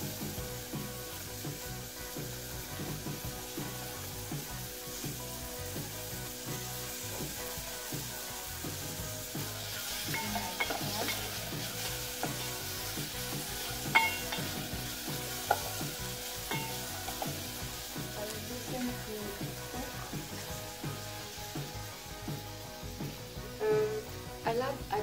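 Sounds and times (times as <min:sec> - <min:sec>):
onions sizzling in a pot: 0:00.0 - 0:25.0
wooden spoon knocking metal pot: 0:10.1 - 0:11.4, 0:13.9 - 0:14.7, 0:15.4 - 0:15.8, 0:16.5 - 0:17.4.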